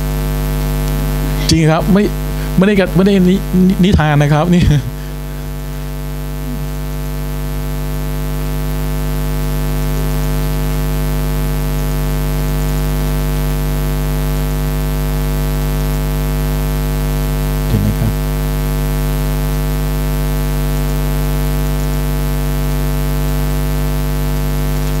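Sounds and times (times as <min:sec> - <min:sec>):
electrical mains hum: 0:00.0 - 0:15.6, 0:17.5 - 0:18.5.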